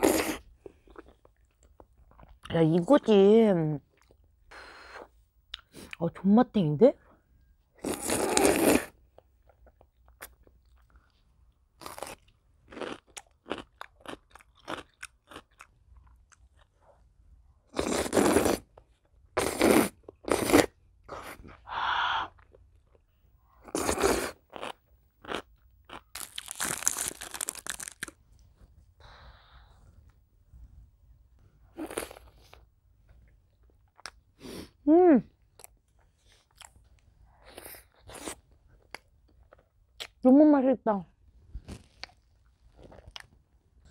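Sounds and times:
person slurping noodles: 0:00.0 - 0:00.4, 0:07.8 - 0:09.0, 0:17.8 - 0:18.6, 0:19.4 - 0:21.4, 0:23.6 - 0:24.7.

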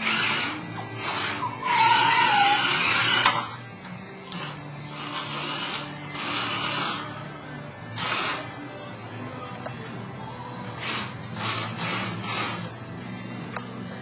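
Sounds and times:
toy car electric motor whirring: 0:00.0 - 0:03.6, 0:04.3 - 0:07.2, 0:08.0 - 0:08.5, 0:10.8 - 0:12.8.

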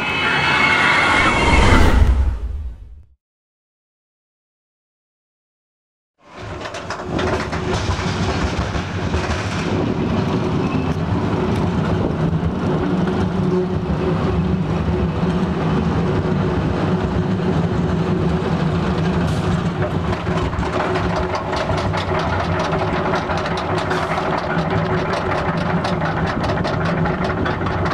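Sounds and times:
roller coaster rumbling on track: 0:06.2 - 0:27.9
lift hill rapid clicking: 0:06.3 - 0:27.9.

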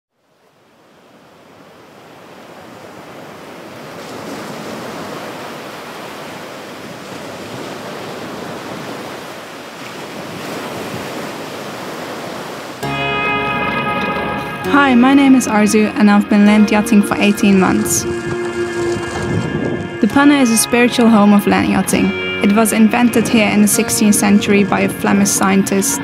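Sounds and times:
wind: 0:00.1 - 0:12.8
surf breaking on a beach: 0:00.2 - 0:12.9.

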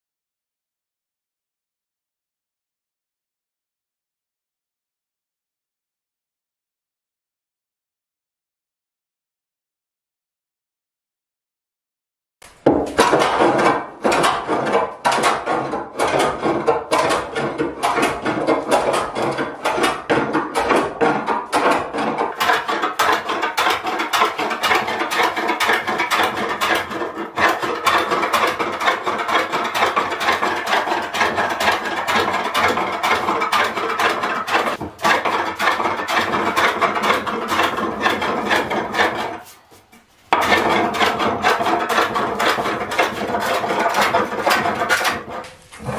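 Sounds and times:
plane shaving wood: 0:12.7 - 0:45.9.

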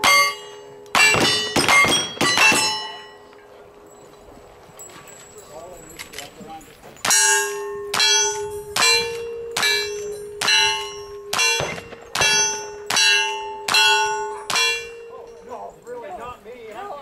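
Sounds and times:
bullet hitting steel target: 0:00.0 - 0:03.0, 0:07.0 - 0:15.0
gunshots: 0:01.0 - 0:03.0, 0:11.4 - 0:13.2.

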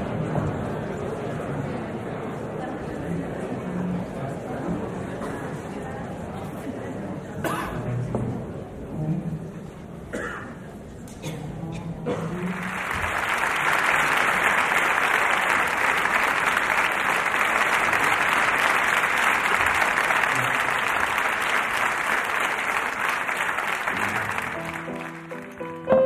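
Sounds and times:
audience applauding: 0:12.3 - 0:26.0.

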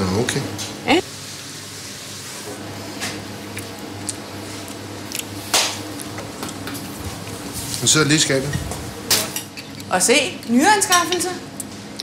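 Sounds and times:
utensils and dishes clattering: 0:08.3 - 0:10.0.

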